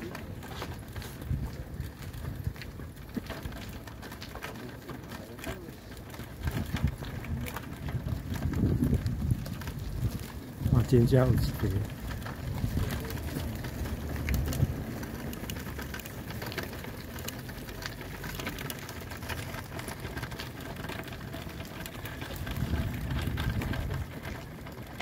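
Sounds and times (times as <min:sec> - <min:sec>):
footsteps: 0:00.0 - 0:25.0
wheelchair wheels rolling over asphalt: 0:00.0 - 0:25.0
low rumbles: 0:05.6 - 0:25.0.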